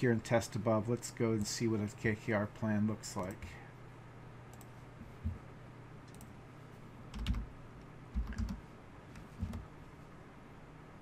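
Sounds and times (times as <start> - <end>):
dull thumps of keystrokes: 7.1 - 7.5, 8.1 - 8.6, 9.2 - 9.7
typing on computer keyboard: 7.1 - 7.5, 8.1 - 8.6.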